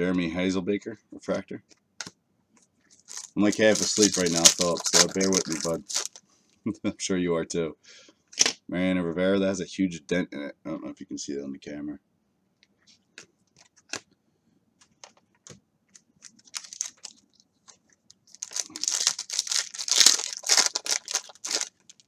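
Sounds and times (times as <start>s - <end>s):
wrapper tearing and crinkling: 3.0s - 6.2s, 16.2s - 17.2s, 18.2s - 22.0s.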